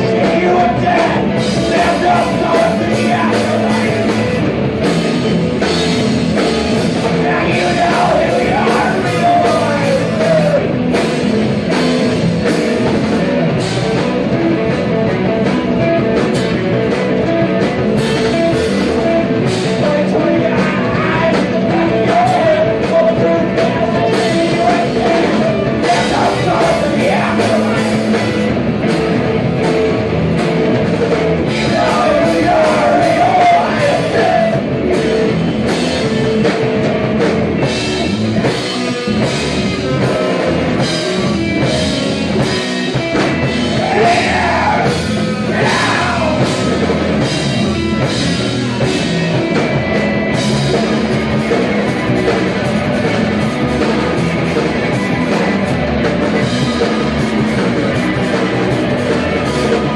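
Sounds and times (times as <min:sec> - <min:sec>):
person singing: 0:00.0 - 0:04.3, 0:07.0 - 0:10.8, 0:19.0 - 0:28.3, 0:31.5 - 0:34.8, 0:43.6 - 0:46.9
rock band playing: 0:00.0 - 0:59.9.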